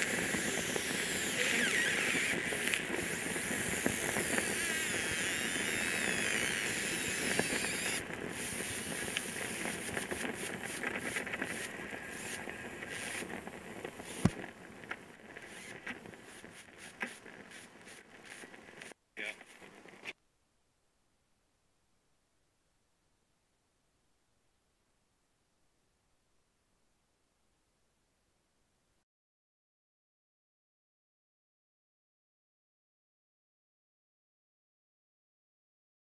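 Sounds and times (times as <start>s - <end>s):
camcorder burning hiss and crackle: 0.0s - 20.2s.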